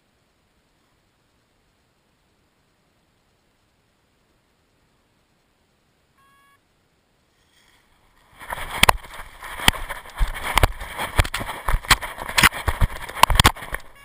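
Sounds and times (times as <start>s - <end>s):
electronic beep: 6.2s - 6.6s.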